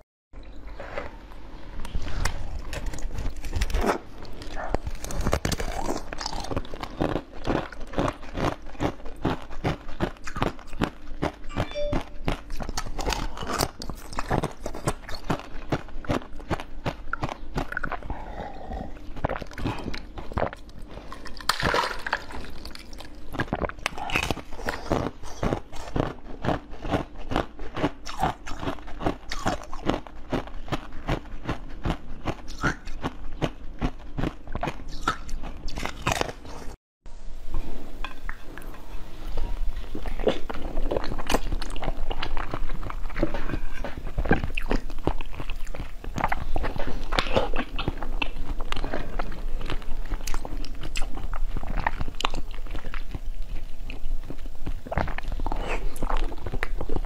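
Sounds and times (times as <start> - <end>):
crunching frozen ice: 2.2 - 11.4.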